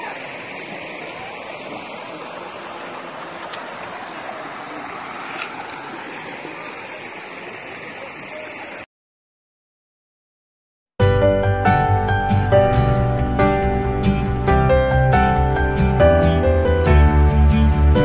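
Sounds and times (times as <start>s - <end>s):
stream flowing over rocks: 0.0s - 8.9s.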